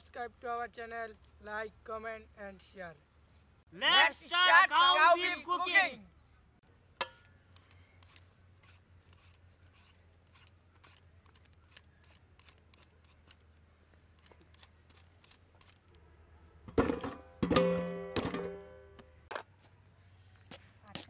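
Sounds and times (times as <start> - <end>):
peeler scraping fruit skin: 7.5 - 15.9.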